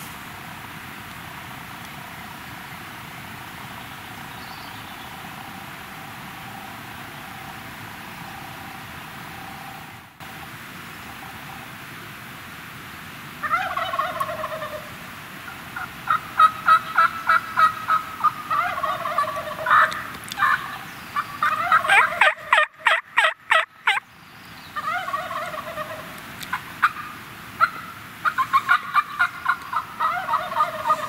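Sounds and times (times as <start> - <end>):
turkey gobbling: 13.4 - 14.9, 15.8 - 24.0, 24.8 - 31.0.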